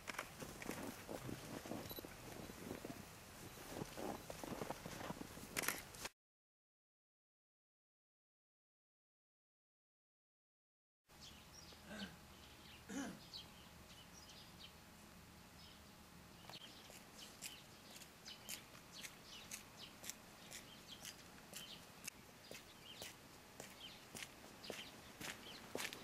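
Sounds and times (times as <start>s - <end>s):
footsteps on frozen snowy path: 0.1s - 6.1s, 22.5s - 26.0s.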